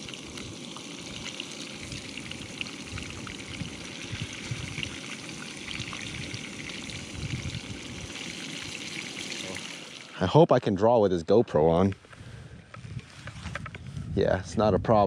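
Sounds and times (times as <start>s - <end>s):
fish frying in oil: 0.0s - 10.2s
oil popping and crackling: 0.0s - 10.2s.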